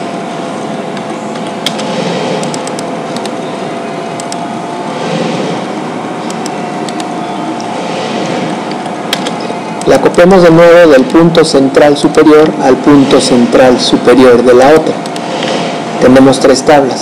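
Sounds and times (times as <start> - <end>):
background hum and hiss: 0.0 - 17.0
faint steady whine: 0.0 - 17.0
computer mouse clicks: 1.0 - 3.4, 4.2 - 4.4, 6.2 - 7.1, 8.7 - 9.4.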